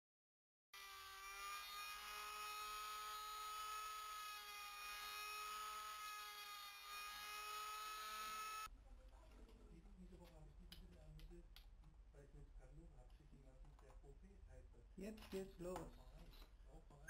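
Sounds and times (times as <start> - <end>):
rotary tool cutting metal: 0.8 - 8.7.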